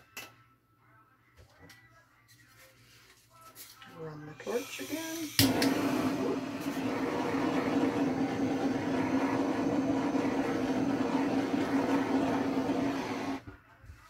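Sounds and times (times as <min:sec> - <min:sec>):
blowtorch flame hissing: 0:04.4 - 0:13.5.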